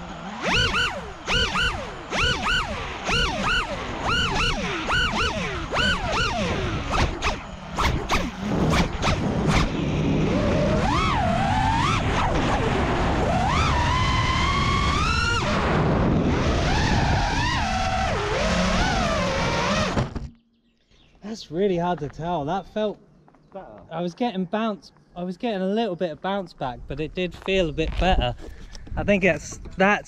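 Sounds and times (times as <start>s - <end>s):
drone motors whining: 0.0s - 20.6s
rushing wind: 3.6s - 20.3s, 26.8s - 30.0s.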